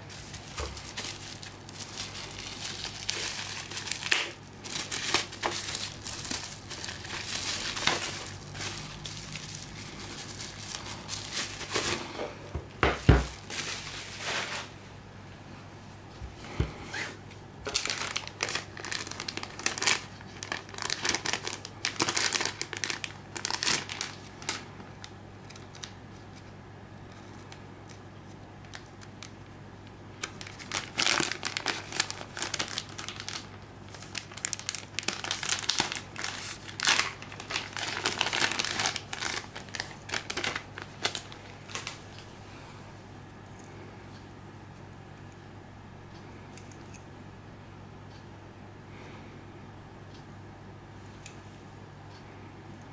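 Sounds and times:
plastic bag crinkling: 0.0s - 12.2s, 13.2s - 14.7s, 17.6s - 26.3s, 30.2s - 42.2s.

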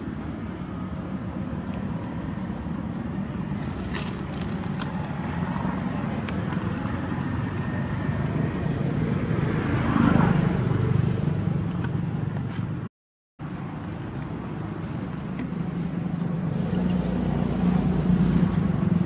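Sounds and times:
low traffic rumble: 0.0s - 19.0s
vehicle driving past: 6.7s - 11.6s.

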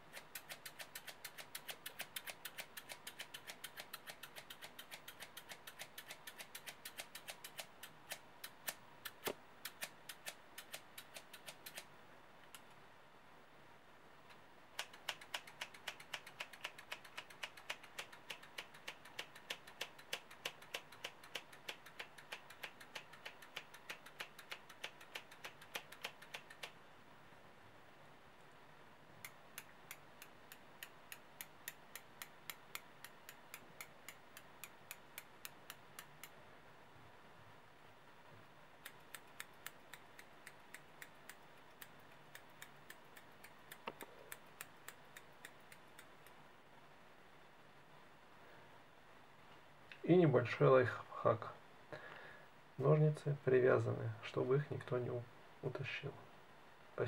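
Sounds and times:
scissors snipping: 0.0s - 11.9s, 14.8s - 26.8s, 38.8s - 46.4s.

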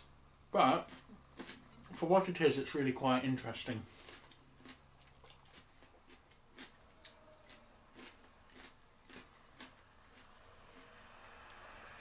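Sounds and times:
cucumber being chewed: 0.6s - 2.0s, 3.9s - 11.2s.

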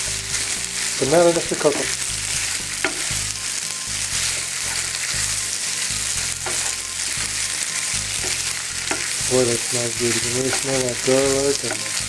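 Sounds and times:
pasta sizzling in a pan: 0.0s - 12.0s
utensil scraping a pan: 4.2s - 12.0s.

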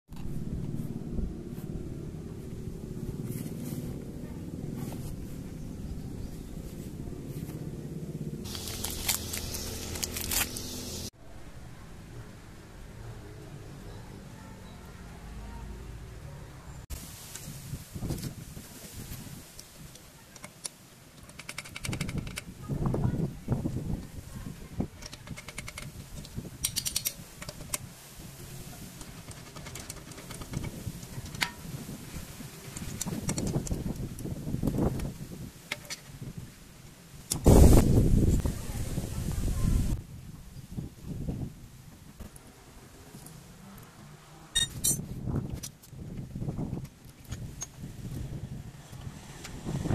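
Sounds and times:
low background rumble: 0.2s - 11.8s
scraping and handling noise: 2.4s - 7.6s, 8.4s - 11.1s, 24.4s - 35.1s
plastic wrap crinkling: 8.4s - 11.1s.

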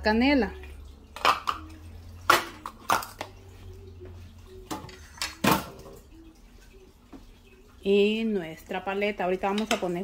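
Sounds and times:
kitchenware knocks and clatters: 1.2s - 3.3s, 4.6s - 6.0s, 9.4s - 10.0s.

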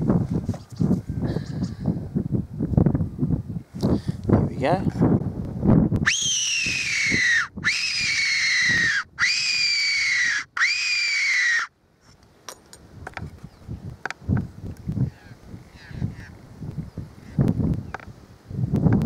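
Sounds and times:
squealing fox whistle calls: 6.0s - 11.7s.

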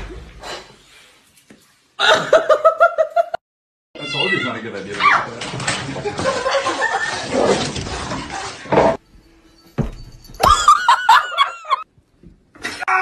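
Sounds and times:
thump: 9.8s - 10.2s.

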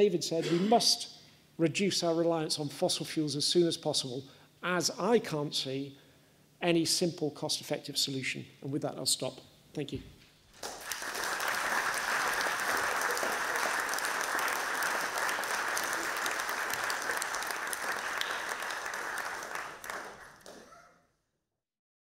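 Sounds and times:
audience applauding: 10.6s - 20.8s.

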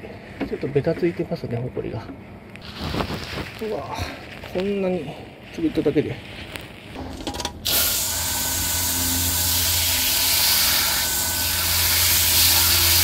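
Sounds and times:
low hum: 7.0s - 13.0s
water spraying on mesh screen: 7.6s - 13.0s.

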